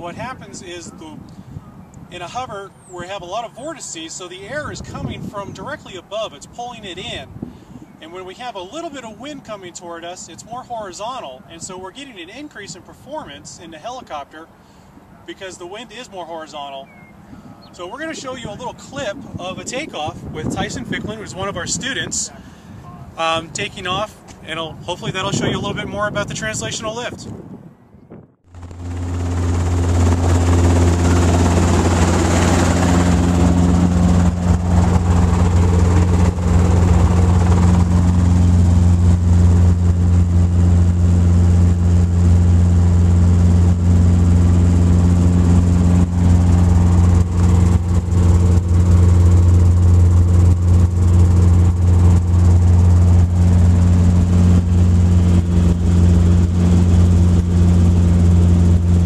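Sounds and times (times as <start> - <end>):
helicopter engine and rotor: 0.1 - 3.3, 14.5 - 22.8, 28.5 - 59.0.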